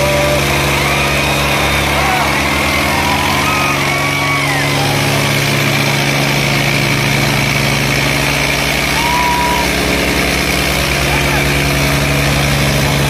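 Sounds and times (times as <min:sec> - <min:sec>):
tractor engine under heavy load: 0:00.0 - 0:13.0.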